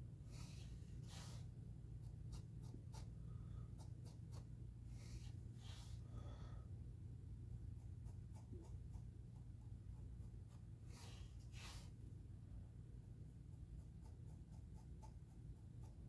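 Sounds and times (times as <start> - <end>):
faint low hum: 0.0 - 16.0
paintbrush swishing on plastic: 0.3 - 6.0, 8.0 - 12.1.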